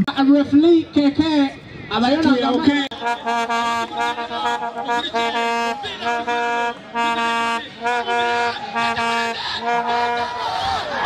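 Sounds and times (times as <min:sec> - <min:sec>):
horn blasts: 0:02.9 - 0:11.0.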